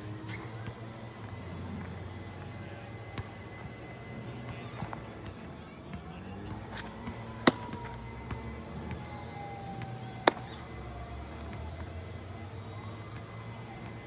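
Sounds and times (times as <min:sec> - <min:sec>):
baseball caught in glove: 0:06.4 - 0:10.6.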